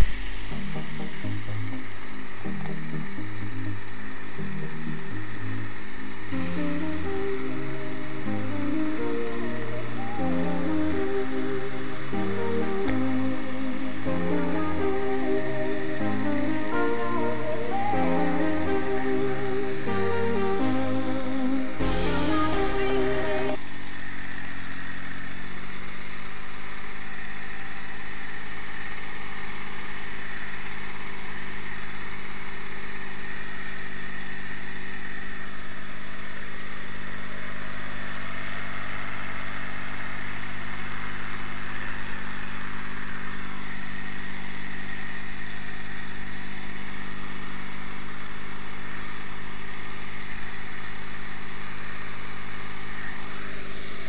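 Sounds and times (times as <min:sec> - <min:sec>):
tractor diesel engine under load: 0:35.0 - 0:54.0.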